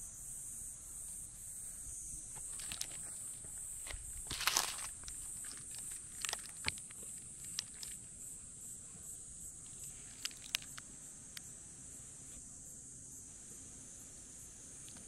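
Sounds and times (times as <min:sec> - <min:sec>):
small clicks and rustles: 0:02.4 - 0:08.1, 0:09.6 - 0:11.5.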